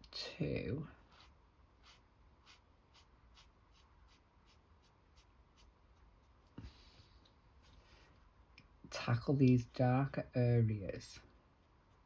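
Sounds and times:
marker scratching on paper: 1.0 - 6.6.

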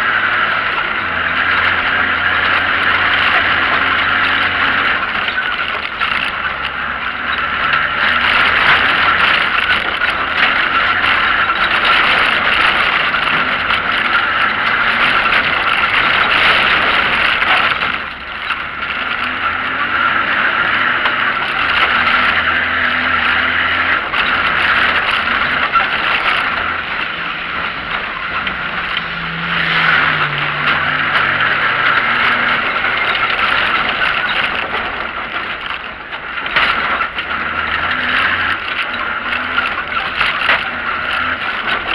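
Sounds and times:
car engine revving: 0.0 - 41.9
tyre and road noise: 0.0 - 41.9.

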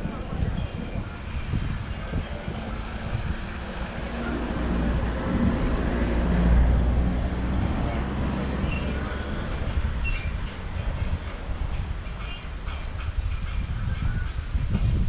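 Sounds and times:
motor vehicle passing: 1.1 - 11.1.

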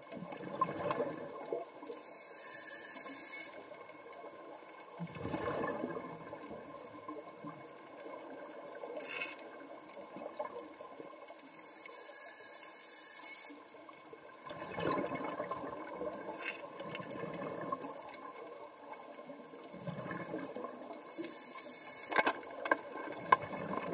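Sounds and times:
bubbling water rushes: 0.0 - 1.8, 4.9 - 8.9, 14.4 - 21.1, 22.5 - 23.9
underwater hiss: 1.8 - 3.9, 11.2 - 14.0, 20.3 - 22.3.

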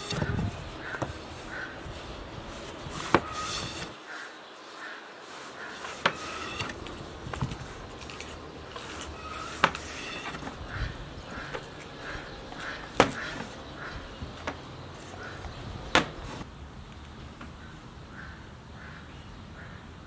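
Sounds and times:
rolling pin rolling dough: 0.0 - 4.0, 5.3 - 16.4
small birds chirping: 0.0 - 20.0.

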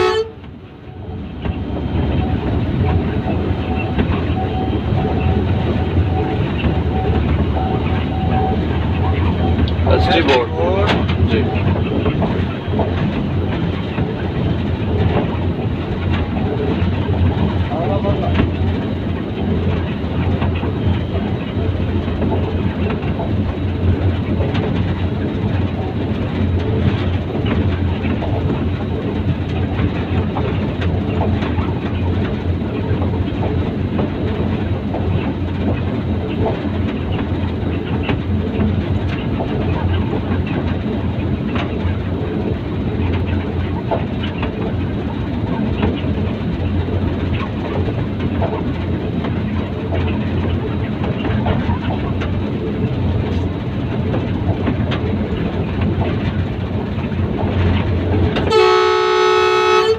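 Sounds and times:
diesel locomotive engine drone: 0.0 - 59.9
wheels clicking over rails: 0.4 - 58.5.

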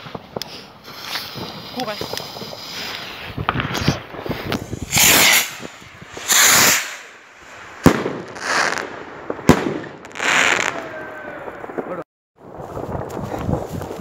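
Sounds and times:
firework rocket launch hiss: 0.0 - 8.9
firework bangs: 0.0 - 14.0.

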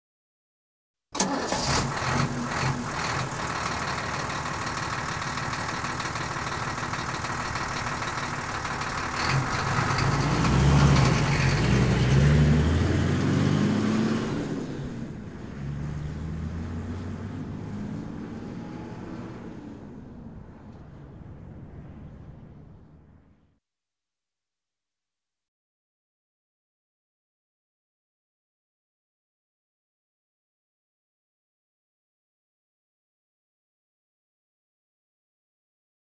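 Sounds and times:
diesel engine running: 1.2 - 13.4.

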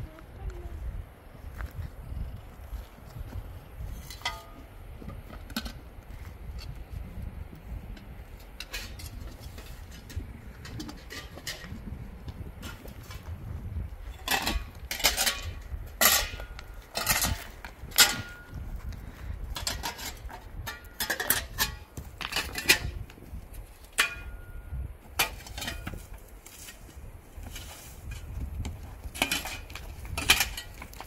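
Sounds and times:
metal tool striking rock: 14.2 - 18.6, 23.9 - 24.6.

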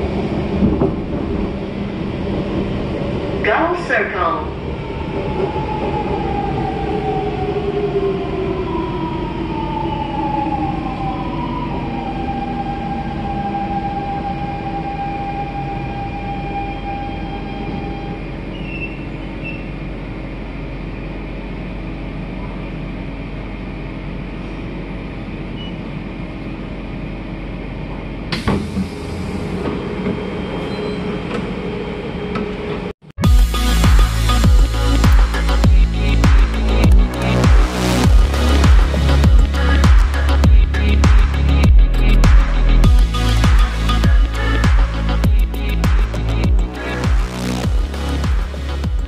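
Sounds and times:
train doors opening: 0.0 - 3.1, 12.7 - 19.9, 27.9 - 32.9.

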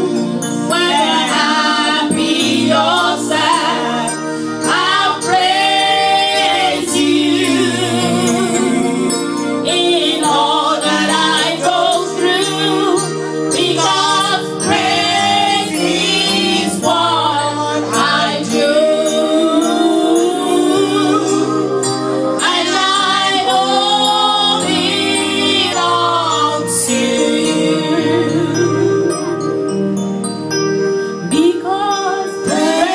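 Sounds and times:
women singing along: 0.0 - 29.0, 31.3 - 32.9
instrumental backing: 0.0 - 32.9
woman singing lead: 31.3 - 32.9.

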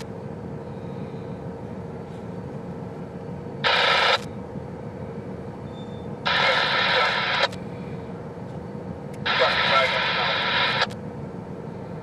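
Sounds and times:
low steady rumble: 0.0 - 12.0
radio static burst: 3.6 - 4.3, 6.2 - 7.6, 9.3 - 11.0.

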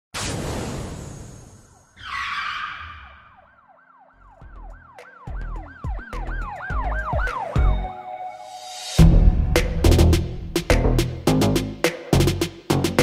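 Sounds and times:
siren-like wail: 1.5 - 8.5
deep bass hits: 9.0 - 11.8.

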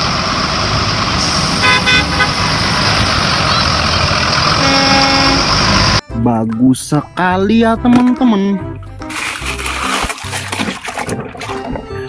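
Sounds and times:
buses driving on wet road: 0.0 - 6.0
bus horn toots: 1.5 - 2.6, 4.5 - 6.0.

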